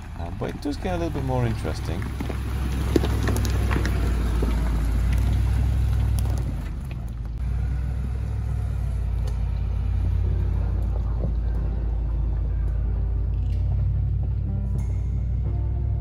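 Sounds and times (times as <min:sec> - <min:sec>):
stones cracking under tyres: 0:00.0 - 0:07.4
low engine rumble: 0:00.0 - 0:16.0.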